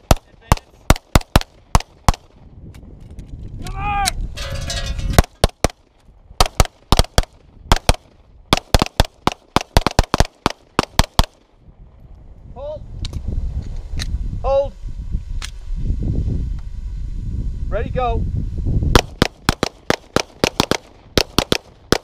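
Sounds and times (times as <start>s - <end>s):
rapid pistol fire: 0.0s - 2.4s, 5.2s - 11.5s, 18.9s - 22.0s.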